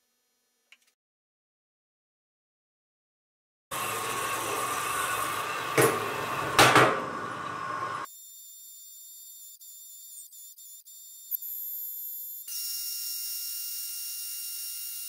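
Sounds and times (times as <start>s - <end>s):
band saw cutting steel: 3.7s - 8.1s
high machine whine: 3.7s - 8.1s.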